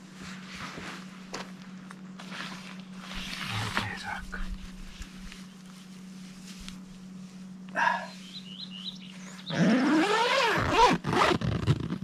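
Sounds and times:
bird chirps: 8.0s - 9.8s.

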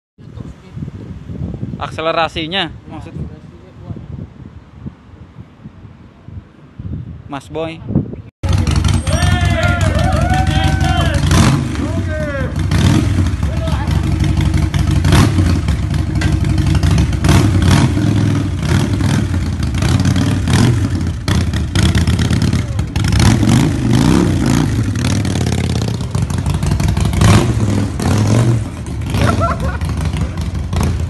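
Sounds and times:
motorcycle engine revving: 8.4s - 31.0s.

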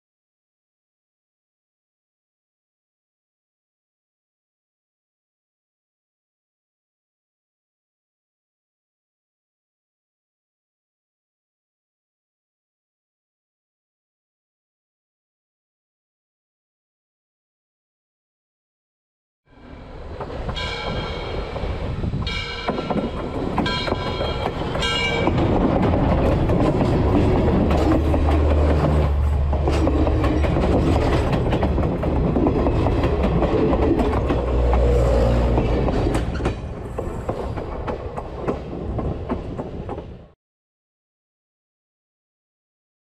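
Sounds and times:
train rumbling past: 19.5s - 40.4s
wheels clicking over rails: 20.0s - 40.3s.

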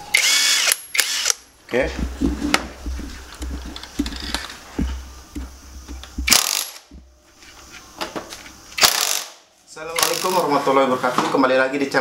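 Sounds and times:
impact wrench rattling: 6.0s - 7.0s, 8.8s - 9.4s, 10.0s - 10.4s.

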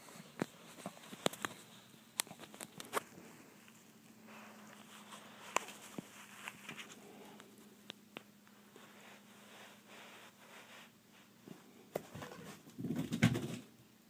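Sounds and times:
faint steady hum: 0.0s - 14.0s
cat moving on carpet: 2.5s - 7.4s.

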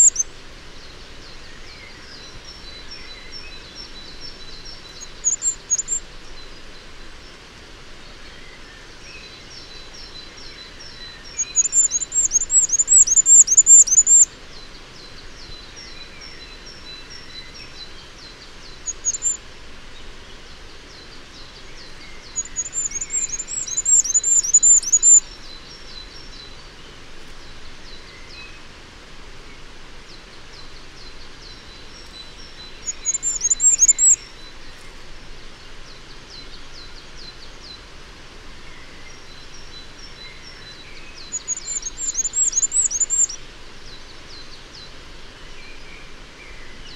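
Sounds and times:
bird singing high thin notes: 0.0s - 0.3s, 22.0s - 25.2s, 32.5s - 34.3s, 40.2s - 43.4s
light hiss: 0.0s - 46.9s.

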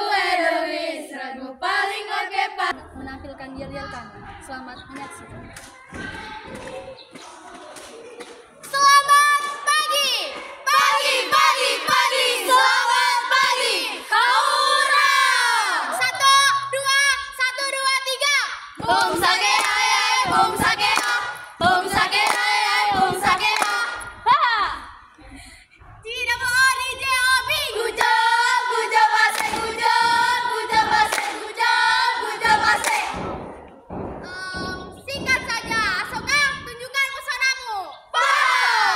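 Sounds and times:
girls chanting and singing: 0.0s - 38.9s
hands clapping: 4.9s - 12.2s, 18.8s - 24.1s, 28.0s - 28.2s, 28.9s - 33.8s.

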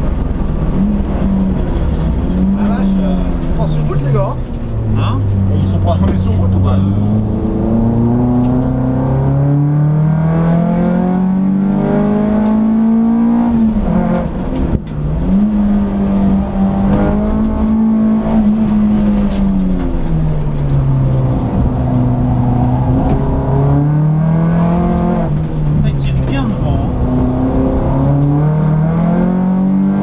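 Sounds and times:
car engine revving from inside cabin: 5.1s - 19.9s, 20.7s - 25.4s, 26.9s - 30.0s.

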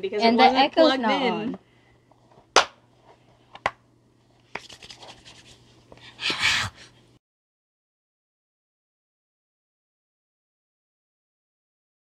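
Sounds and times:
rubbing rustle: 4.6s - 5.8s.

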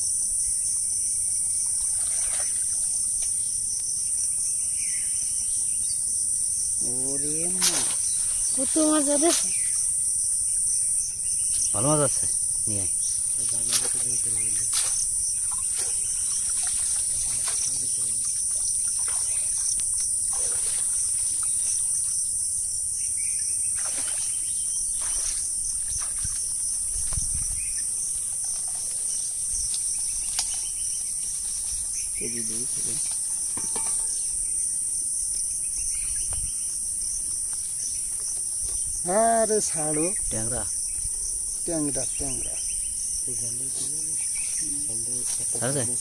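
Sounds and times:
insects chirring: 0.0s - 46.0s
knocks and water splashes: 7.5s - 9.5s, 13.4s - 22.1s, 23.8s - 27.5s, 32.9s - 34.2s.

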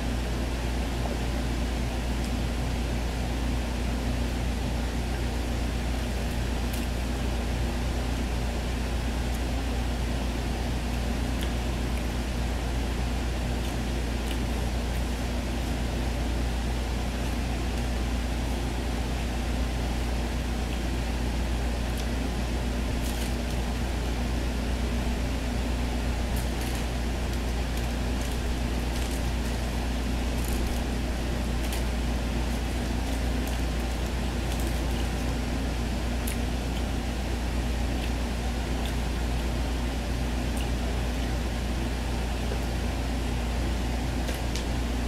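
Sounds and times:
low mechanical hum: 0.0s - 45.0s
paper wrappers crinkling: 26.3s - 31.9s.

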